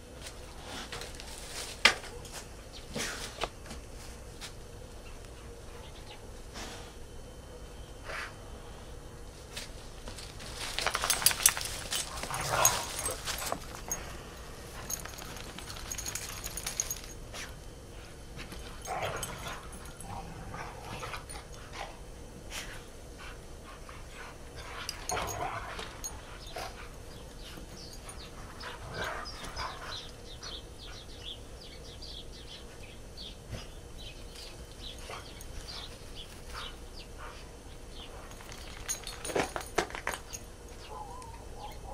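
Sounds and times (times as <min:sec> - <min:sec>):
dogs playing: 0:09.5 - 0:31.8, 0:32.6 - 0:41.9.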